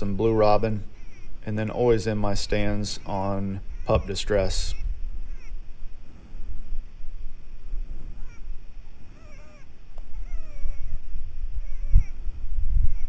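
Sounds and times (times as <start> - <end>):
short bending calls: 0.0 - 5.8
wind rumble on microphone: 0.0 - 13.0.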